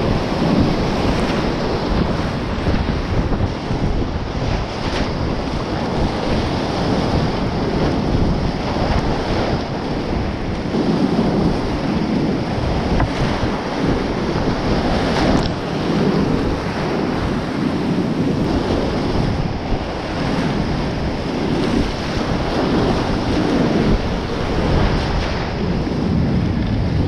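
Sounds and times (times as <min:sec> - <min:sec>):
whitewater rapid rushing: 0:00.0 - 0:26.2
waves breaking over kayak bow: 0:00.0 - 0:27.0.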